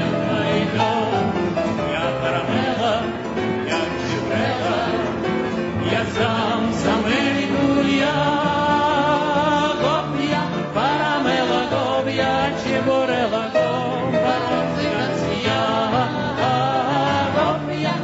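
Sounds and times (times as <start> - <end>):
song with singing voices: 0.0 - 18.0.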